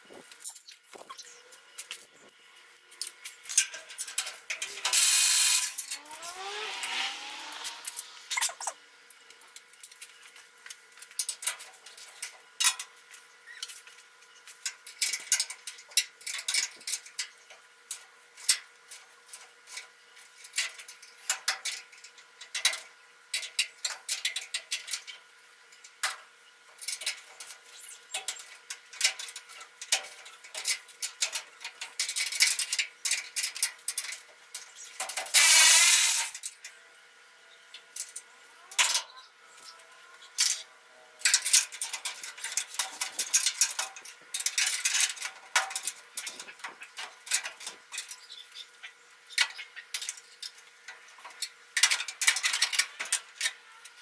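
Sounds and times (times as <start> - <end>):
loud hiss: 4.9 - 5.8, 35.4 - 36.3.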